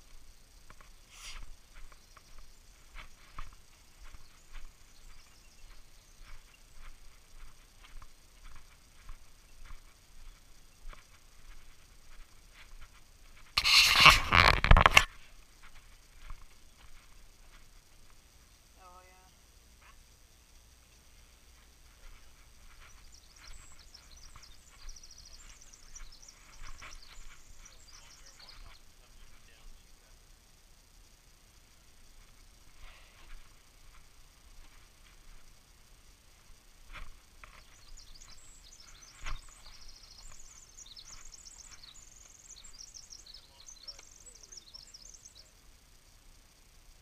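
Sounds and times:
small birds singing: 0:00.0 - 0:47.0
songbird chirps and trills: 0:00.0 - 0:47.0
footsteps on wooden boardwalk: 0:00.1 - 0:18.2, 0:21.5 - 0:28.8, 0:36.4 - 0:42.0.

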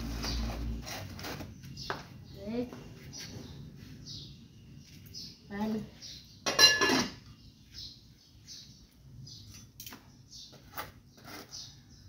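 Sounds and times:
small bird chirping: 0:00.0 - 0:12.0
metal pot lid clattering: 0:06.4 - 0:07.2.

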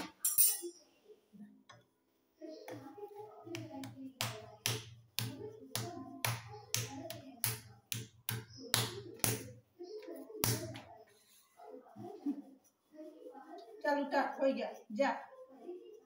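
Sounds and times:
palms slapping dough: 0:02.6 - 0:11.2.

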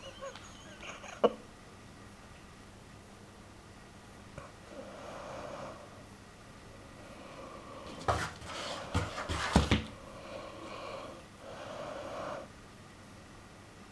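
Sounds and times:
soft breathy noise: 0:04.4 - 0:09.2, 0:09.9 - 0:12.6.

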